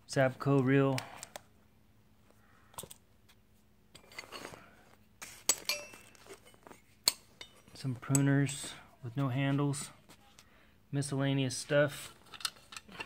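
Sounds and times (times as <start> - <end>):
soft handling sounds: 0.2 - 10.6, 11.5 - 13.0
steel tools clinking: 4.0 - 4.6, 5.4 - 8.3, 12.2 - 13.0.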